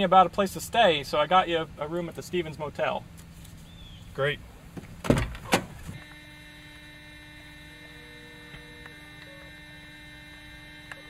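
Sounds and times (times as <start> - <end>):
electrical mains hum: 0.0 - 11.0
car door thumping shut: 4.8 - 6.0
faint ticks: 7.7 - 9.4.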